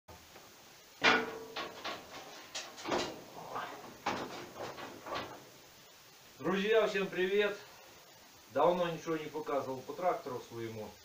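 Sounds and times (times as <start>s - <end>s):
boots on metal floor plate: 1.0s - 5.6s.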